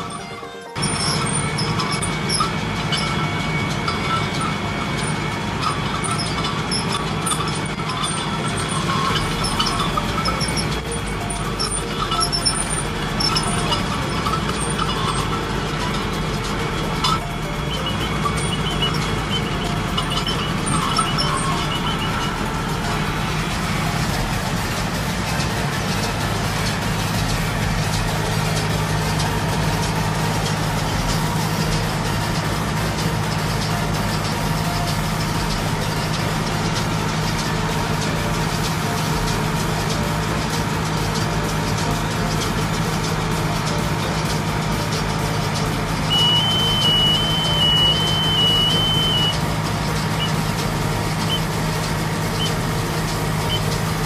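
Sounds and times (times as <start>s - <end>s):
baler squeaks and clinks: 0.0s - 32.5s, 40.8s - 54.0s
tractor engine running: 0.0s - 54.0s
short high chirps: 46.1s - 49.4s.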